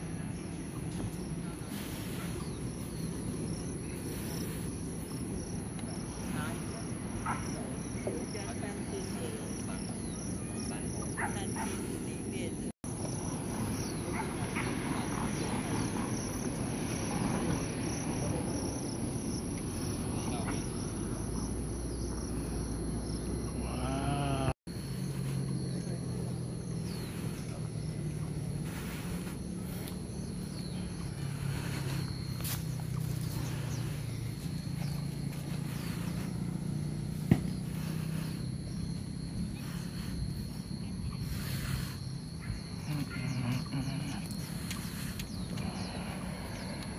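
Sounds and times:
insect high-pitched trill: 0.0s - 46.9s
pulsing insect buzz: 14.6s - 46.9s.

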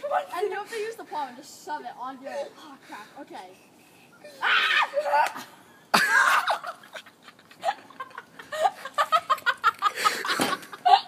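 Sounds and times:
children shrieking and laughing: 4.2s - 11.0s.

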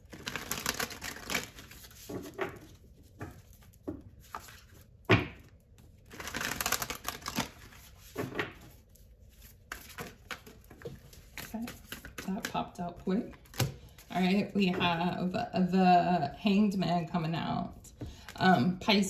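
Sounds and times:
cards being shuffled: 0.0s - 4.9s, 5.5s - 14.1s.

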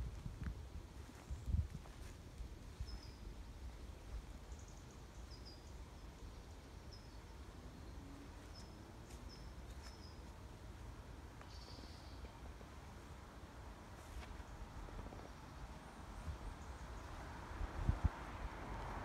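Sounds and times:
small bird chirping: 4.4s - 7.4s, 11.4s - 12.3s.

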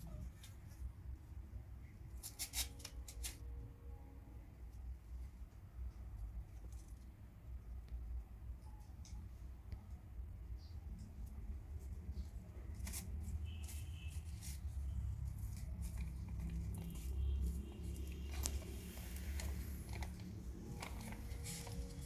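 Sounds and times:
kittens scuffling on concrete: 11.2s - 22.0s.

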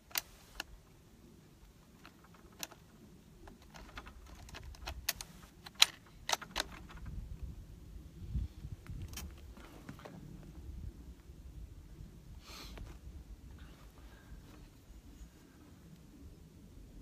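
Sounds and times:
rifle bolt clicks and rattles: 0.0s - 0.8s, 1.7s - 7.3s, 8.9s - 9.5s.

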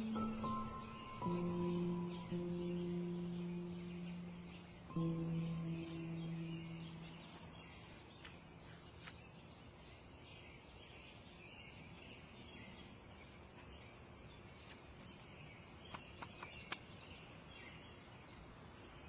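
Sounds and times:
faint bird chirping: 0.0s - 19.0s.

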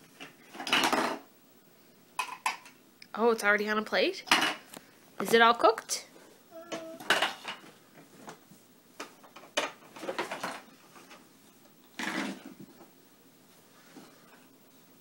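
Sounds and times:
plastic toy dishes clattering: 0.5s - 1.2s, 2.2s - 2.8s, 7.0s - 7.7s, 9.3s - 10.6s, 12.0s - 12.5s.

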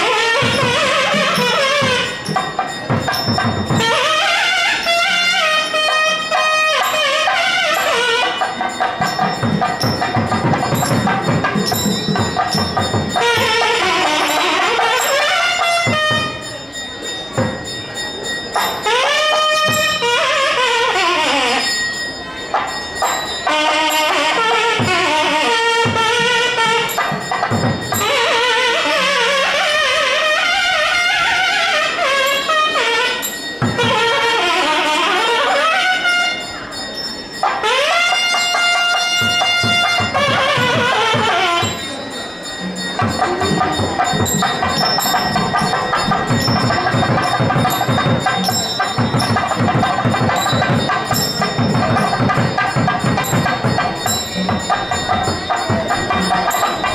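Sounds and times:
fast steady drumming: 0.0s - 16.7s, 23.4s - 30.2s, 37.5s - 56.9s
reed pipe melody: 0.0s - 56.9s.

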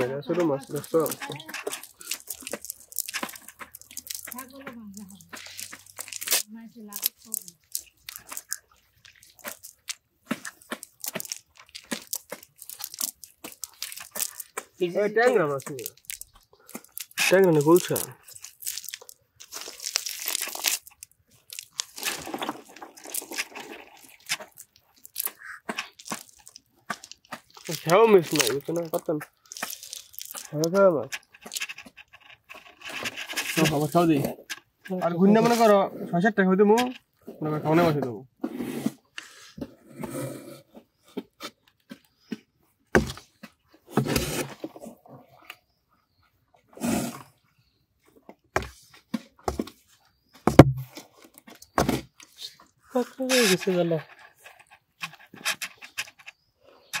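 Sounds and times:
hands crunching through wet net: 0.0s - 34.6s
scraping rustles: 0.0s - 35.8s, 48.6s - 57.0s
clicks and knocks on styrofoam box: 50.4s - 52.3s.

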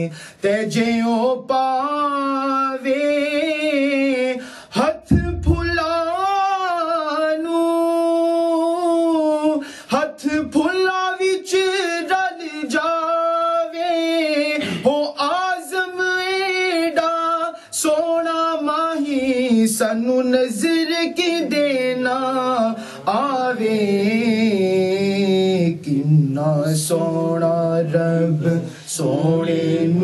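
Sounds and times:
man singing unaccompanied: 0.0s - 30.0s
low thump: 5.1s - 5.9s.

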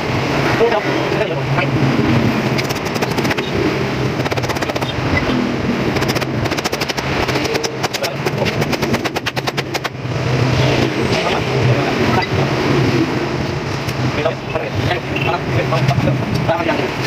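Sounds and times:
steady low hum: 0.0s - 17.0s
rapid metallic clicking tool: 2.5s - 3.6s, 4.2s - 5.3s, 5.9s - 10.0s.

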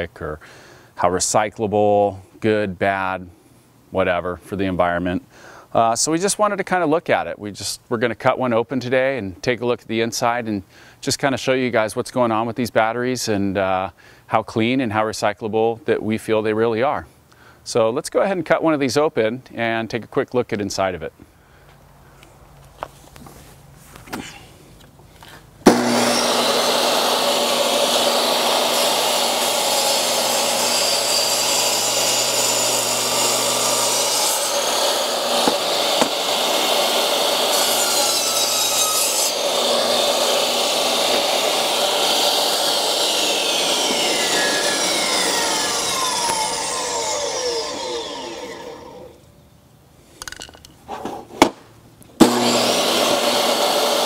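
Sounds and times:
saw winding down whine: 25.6s - 49.2s, 52.2s - 54.0s
table saw cutting: 25.6s - 49.2s, 52.2s - 54.0s.

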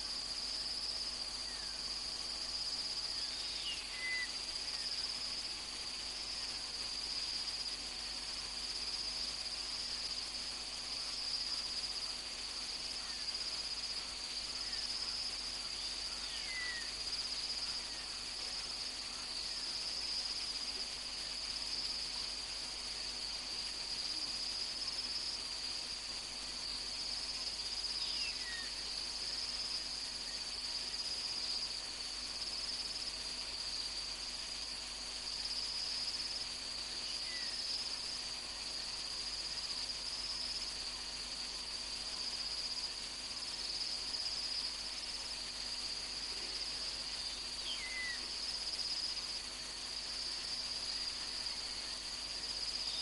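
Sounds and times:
crickets trilling: 0.0s - 53.0s.

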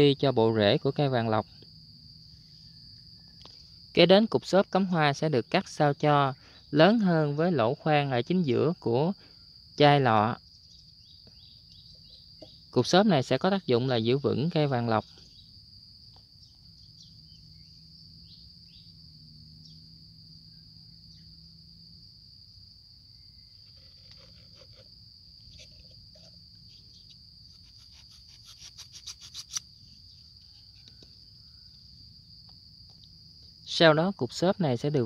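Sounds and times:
high insect trill: 0.0s - 35.0s
knife cutting floral foam: 27.5s - 29.7s.

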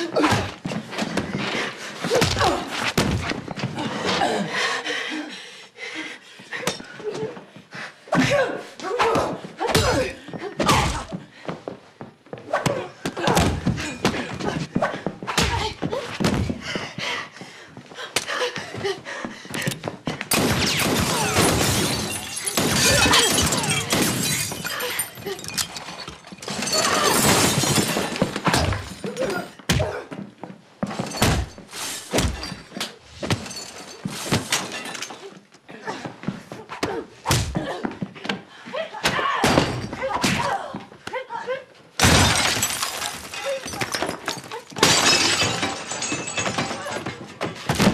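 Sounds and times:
things crashing and shattering: 20.3s - 29.1s, 42.0s - 47.9s.

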